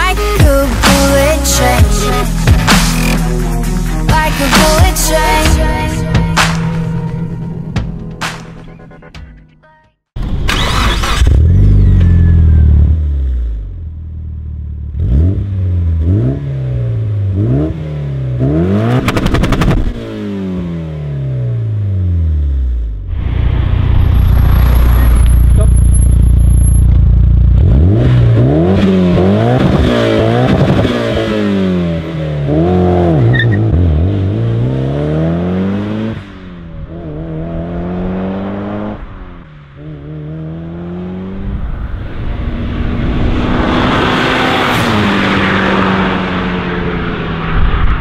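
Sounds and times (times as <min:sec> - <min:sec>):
car engine accelerating: 0:10.2 - 0:48.0
engine drone: 0:21.2 - 0:48.0
rushing noise: 0:23.1 - 0:26.8.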